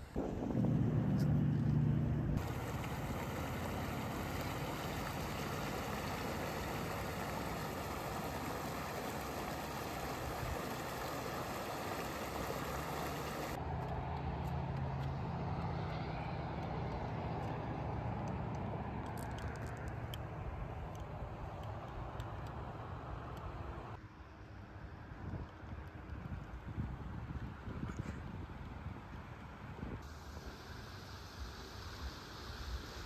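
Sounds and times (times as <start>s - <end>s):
low steady rumble: 0.0s - 13.6s
creek water rushing over rocks: 2.4s - 13.6s.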